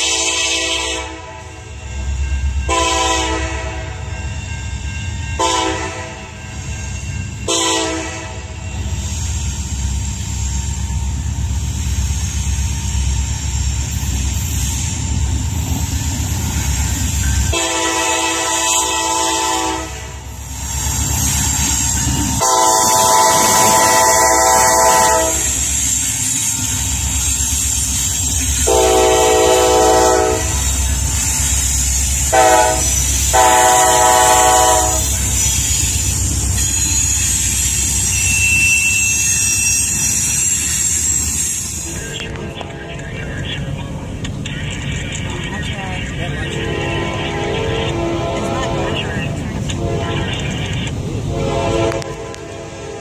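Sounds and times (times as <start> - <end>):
locomotive horn blasts: 0.0 - 1.5, 2.7 - 4.0, 5.4 - 6.3, 7.5 - 8.6, 17.5 - 20.2, 22.4 - 25.5, 28.6 - 30.6, 32.3 - 35.1, 46.5 - 50.4, 51.3 - 53.0.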